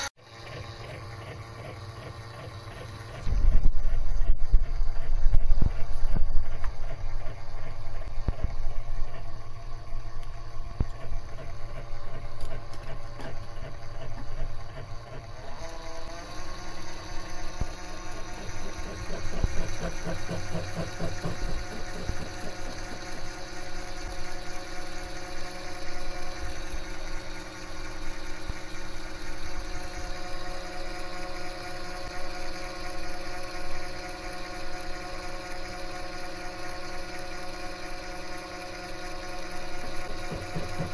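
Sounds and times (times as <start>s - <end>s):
lathe motor humming and whining: 0.0s - 40.9s.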